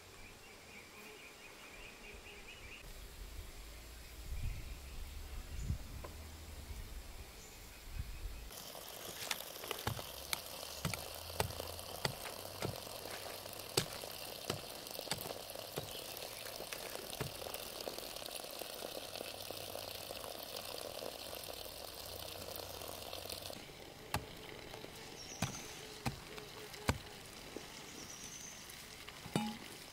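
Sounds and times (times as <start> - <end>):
steady hiss: 2.8 - 29.9
hoe chopping into soil: 9.0 - 17.5, 24.1 - 24.4, 25.4 - 27.2.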